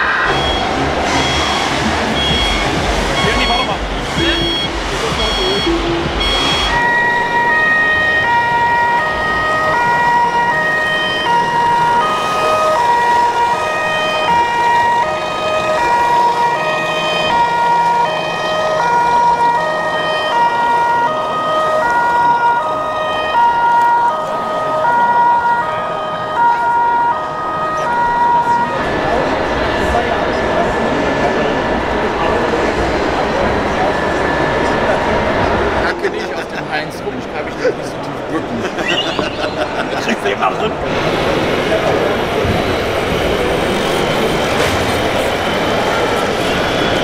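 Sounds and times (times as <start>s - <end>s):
two-tone siren: 0.0s - 30.1s.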